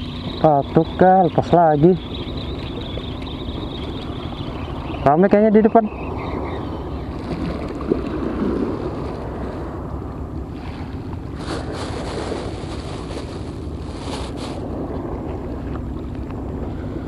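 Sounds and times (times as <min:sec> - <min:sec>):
wind buffeting microphone: 0:00.0 - 0:17.0
crackly rustling: 0:11.0 - 0:16.4.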